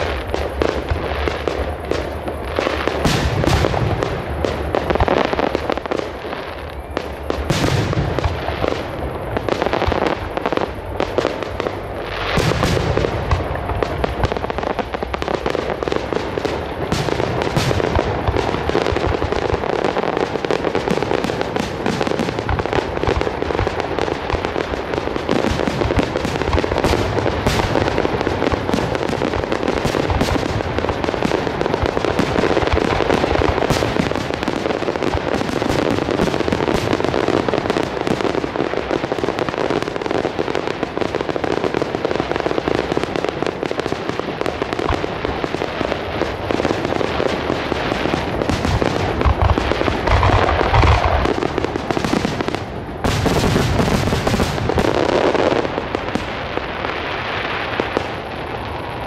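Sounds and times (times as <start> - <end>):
firework crackling: 0.0 - 59.0
firework shells bursting: 47.7 - 56.3.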